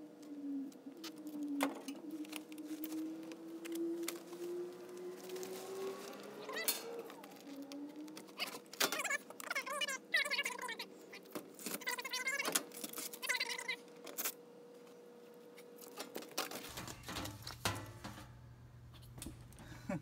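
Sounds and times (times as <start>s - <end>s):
faint steady hum: 6.6s - 20.0s.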